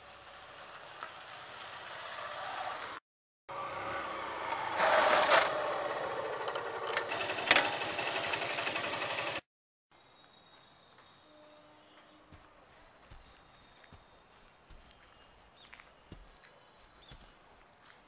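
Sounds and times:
motorcycle engine running: 5.6 - 9.5.

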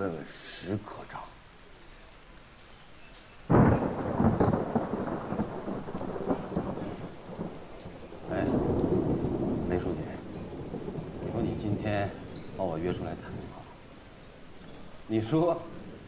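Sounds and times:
rain: 0.0 - 16.0
rolling thunder rumble: 3.5 - 16.0
thunder crack: 3.5 - 16.0.

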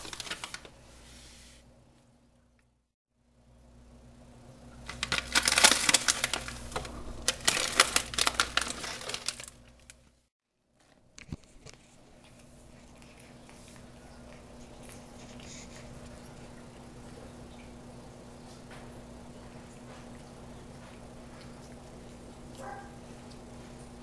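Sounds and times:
plastic pouch crinkling: 0.0 - 0.8, 4.8 - 10.1.

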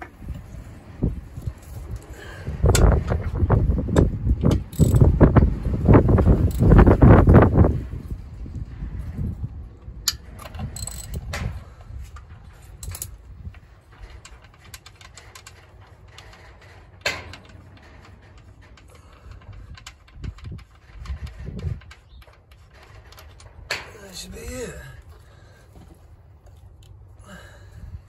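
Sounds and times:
low rumbling handling noise: 0.0 - 28.0
hand tools clicking and clinking: 4.5 - 5.1, 10.0 - 11.4, 12.1 - 25.2.

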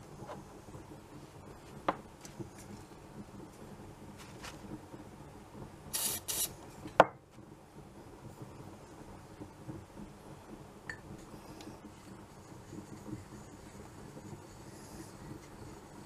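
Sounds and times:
aerosol can hissing: 5.9 - 6.5.

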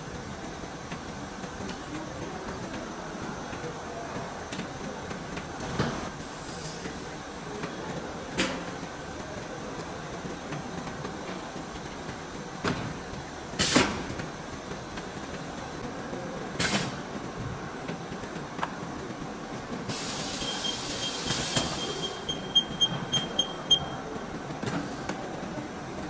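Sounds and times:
short bursts of air hiss: 13.6 - 14.0, 16.6 - 17.0, 19.9 - 22.2
machinery humming: 17.2 - 24.6.

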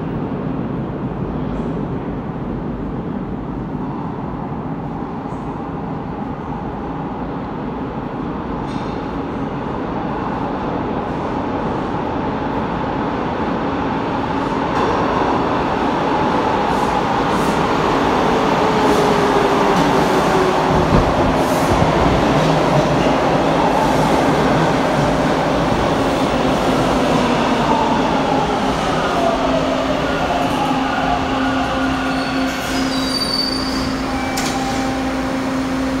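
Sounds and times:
train wheels rumbling on rails: 7.8 - 36.0
thin high brake squeals: 32.1 - 34.9.

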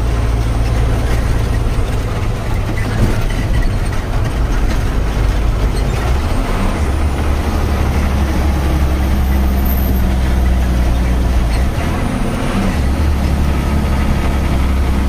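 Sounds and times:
road noise: 0.0 - 15.0
truck diesel engine running: 0.0 - 15.0.

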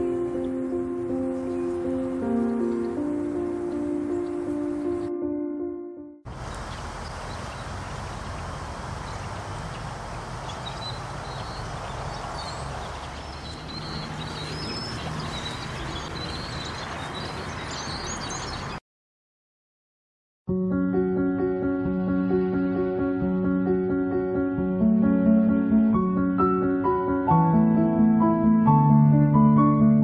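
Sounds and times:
birds chirping: 0.0 - 5.2, 6.3 - 18.8.

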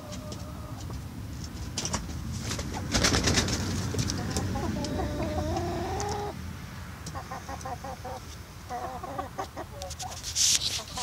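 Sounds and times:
hens clucking: 0.0 - 6.4, 7.0 - 11.0.

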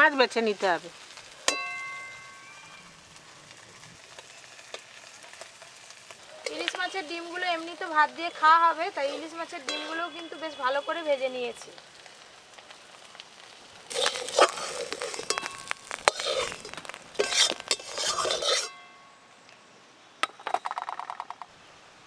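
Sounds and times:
metal plates and utensils clattering: 17.2 - 18.8.

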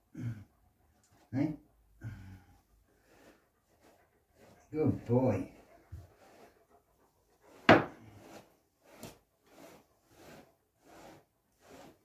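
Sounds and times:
brush stroking dog's coat: 3.0 - 12.0.

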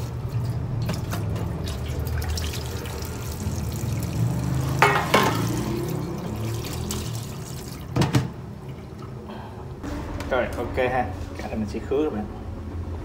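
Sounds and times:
tap water running: 0.0 - 9.2.

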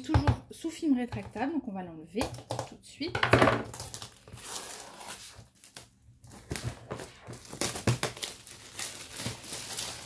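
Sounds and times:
plastic film tearing and crinkling: 3.6 - 10.0.

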